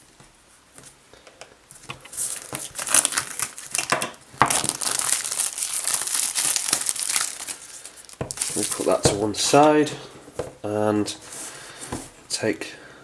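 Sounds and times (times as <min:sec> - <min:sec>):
plastic shrink-wrap crinkling: 0:02.0 - 0:09.9.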